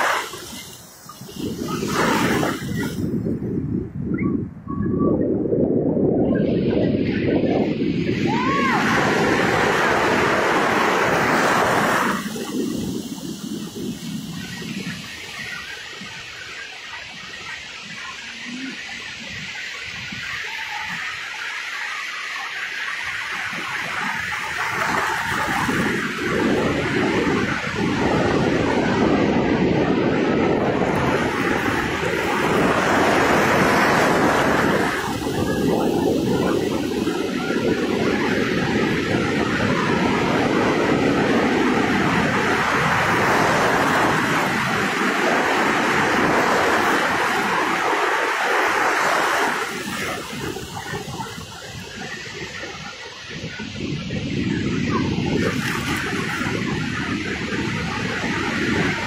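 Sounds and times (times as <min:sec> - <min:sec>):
small waves washing on shore: 0:00.0 - 0:03.6, 0:06.7 - 0:59.0.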